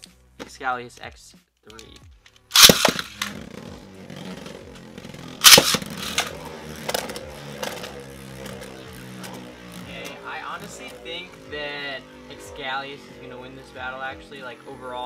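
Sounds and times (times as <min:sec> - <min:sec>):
spinning tops crashing: 0:02.5 - 0:11.0
spinning tops whirring: 0:02.5 - 0:15.0
spinning tops clattering into stadium: 0:05.4 - 0:09.4.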